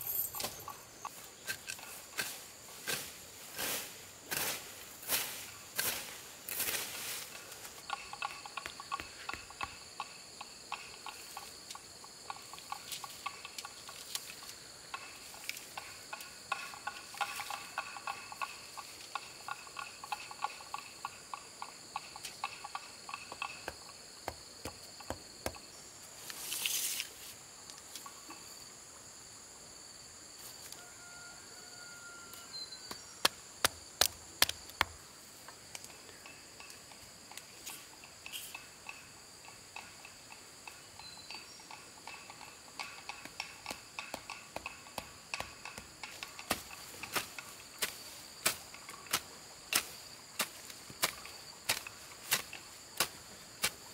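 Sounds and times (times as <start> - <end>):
high-pitched insect drone: 6.8 - 27.2
sharp taps and knocks: 7.9 - 14.3, 14.9 - 25.7, 32.9 - 53.8.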